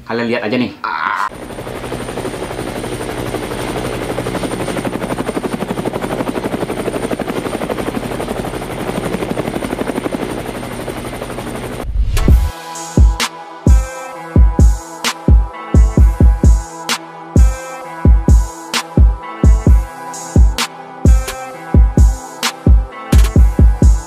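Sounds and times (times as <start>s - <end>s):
drone buzzing in flight: 1.3s - 24.0s
heavy low thump: 11.9s - 12.5s.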